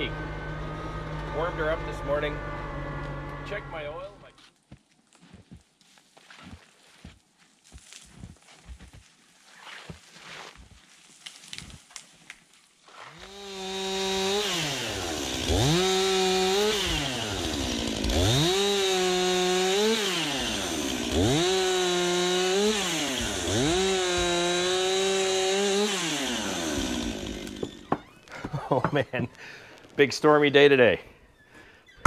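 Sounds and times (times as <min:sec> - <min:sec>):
chainsaw revving and cutting: 0:00.0 - 0:04.2, 0:13.0 - 0:28.1.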